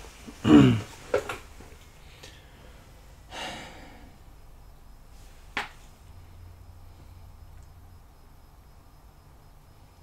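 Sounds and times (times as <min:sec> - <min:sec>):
faint low hum: 0:00.0 - 0:10.0
person breathing out: 0:02.0 - 0:04.2.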